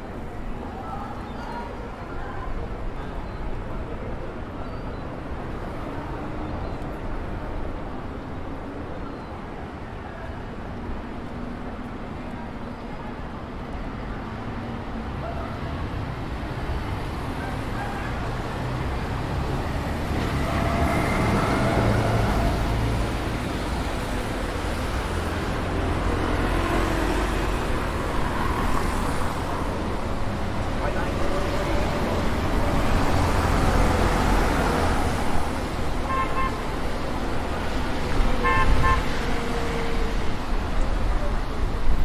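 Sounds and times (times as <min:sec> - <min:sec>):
cars and buses passing: 0:00.0 - 0:42.0.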